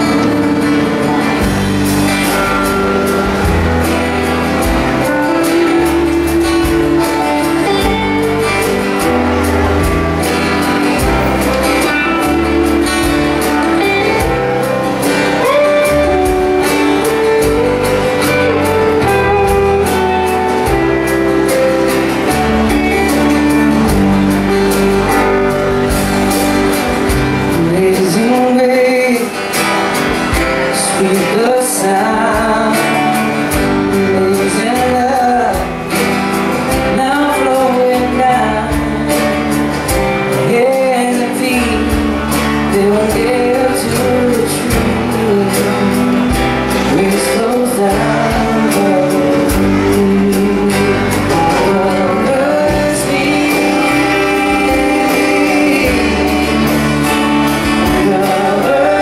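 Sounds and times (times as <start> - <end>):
acoustic guitars strumming: 0.0 - 59.0
electric guitar: 0.0 - 59.0
steady drum beat: 0.0 - 59.0
man singing: 2.2 - 59.0.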